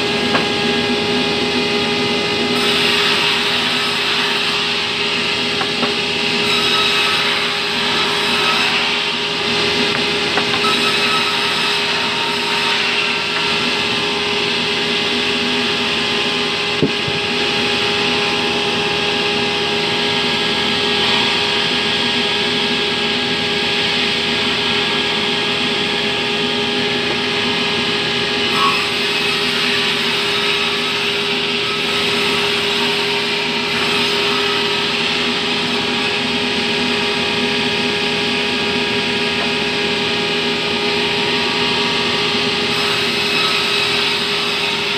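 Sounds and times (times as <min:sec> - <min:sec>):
band saw cutting log: 0:00.0 - 0:18.8, 0:23.6 - 0:44.9.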